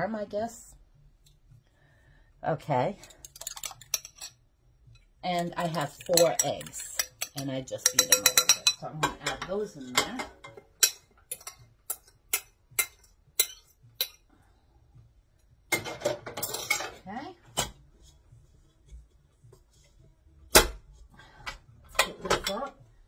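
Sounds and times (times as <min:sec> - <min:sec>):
utensil tapping a bowl: 0:05.6 - 0:10.1.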